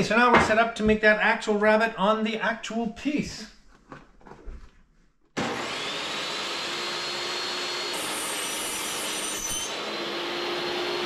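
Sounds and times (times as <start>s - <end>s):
table saw motor running: 5.4s - 11.0s.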